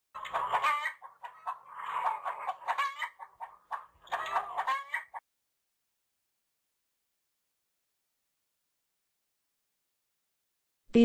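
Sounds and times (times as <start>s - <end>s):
chicken clucking: 0.2s - 5.2s.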